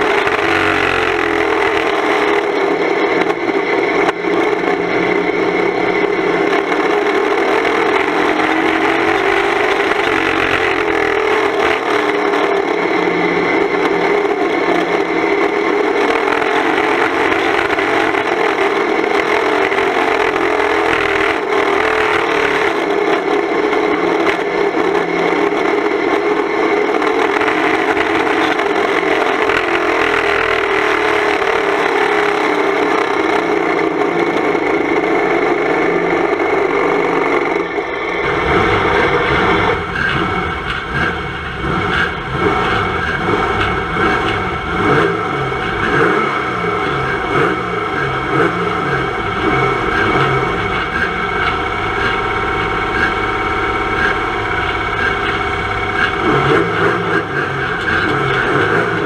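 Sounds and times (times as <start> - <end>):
car engine rasping drone: 0.0 - 59.0.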